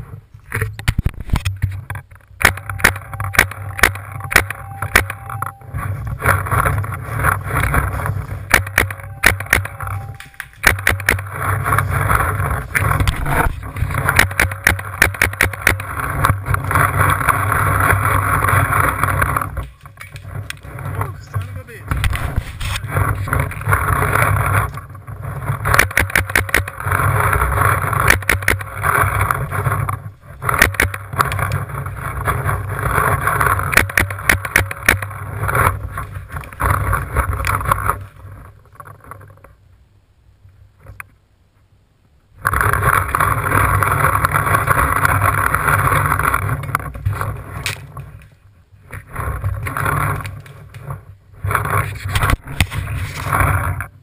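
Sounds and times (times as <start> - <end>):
camera handling rumble: 0.0 - 39.5, 42.4 - 53.9
sharp clicks: 0.5 - 7.8, 8.4 - 17.4, 25.6 - 27.0, 28.0 - 29.0, 30.5 - 31.6, 33.6 - 35.7.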